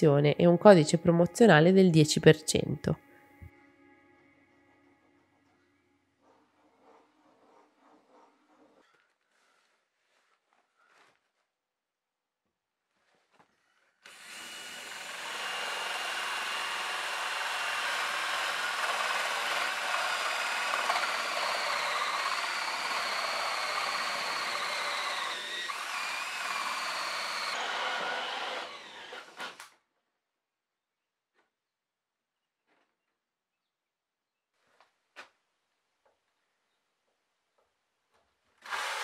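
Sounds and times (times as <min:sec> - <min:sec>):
drill hole saw grinding whine: 0:14.0 - 0:29.7, 0:38.6 - 0:39.0.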